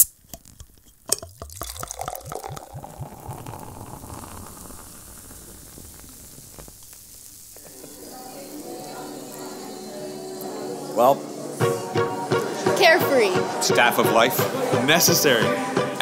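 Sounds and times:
drink bubbling and fizzing: 0.4s - 8.2s
drink pouring into a glass: 1.0s - 8.2s
glass clink: 1.1s - 3.6s.

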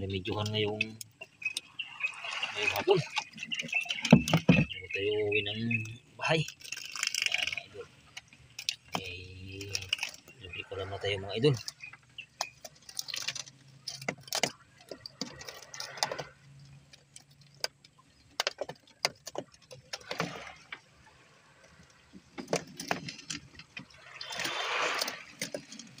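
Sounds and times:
sharp knocks and rattles: 0.2s - 5.0s, 11.5s - 20.9s, 21.8s - 26.0s.

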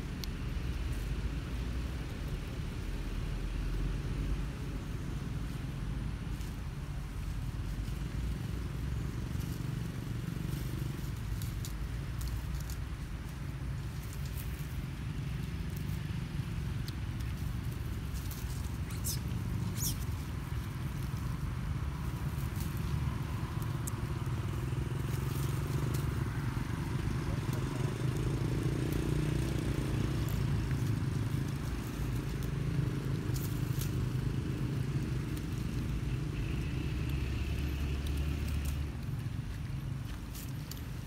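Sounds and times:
faint clicks and rustles: 0.0s - 41.0s
motor engine rumbling: 0.0s - 41.0s.

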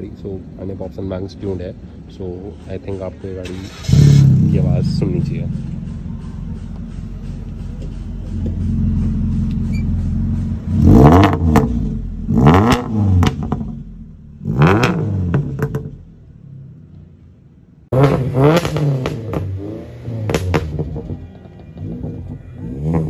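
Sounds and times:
car engine idling: 0.1s - 22.7s
car engine revving: 3.6s - 16.9s, 17.8s - 23.0s
exhaust pops and crackles: 11.2s - 13.9s, 14.7s - 16.0s, 20.3s - 22.4s.

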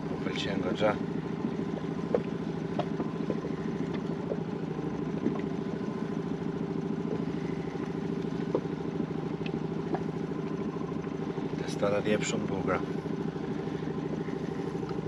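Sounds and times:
engine running steadily: 0.0s - 15.0s
faint clicks: 9.4s - 10.1s.

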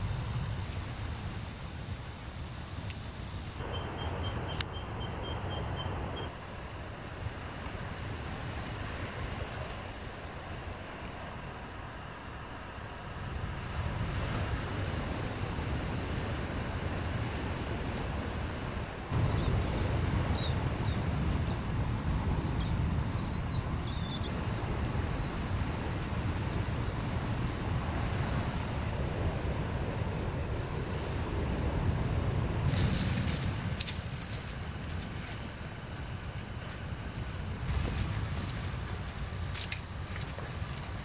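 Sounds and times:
wind buffeting microphone: 26.4s - 41.0s.

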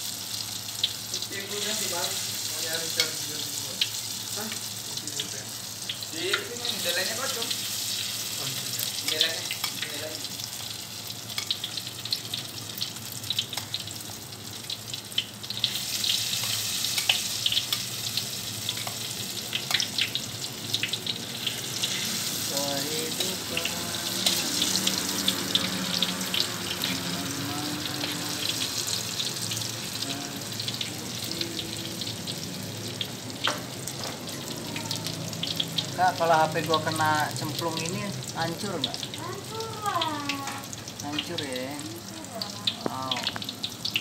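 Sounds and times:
oil sizzling with pops: 0.0s - 44.0s.

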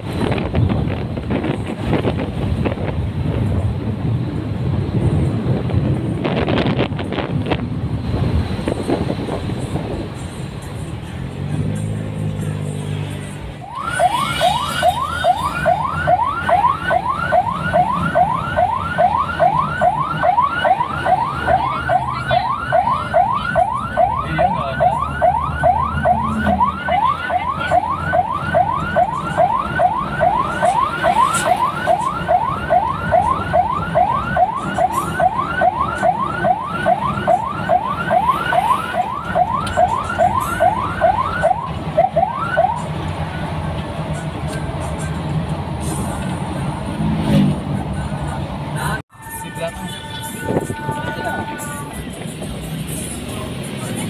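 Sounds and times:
moving vehicle noise: 0.0s - 54.0s
electronic siren yelping: 13.6s - 43.5s.

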